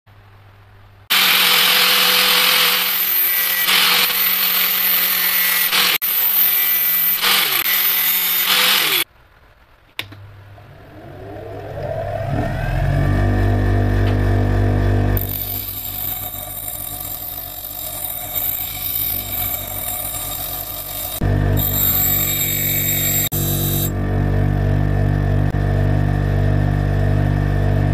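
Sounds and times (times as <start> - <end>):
bench grinder motor spinning up: 1.1 - 9.0, 11.2 - 24.0
angle grinder cutting steel: 1.1 - 9.1, 15.2 - 24.0.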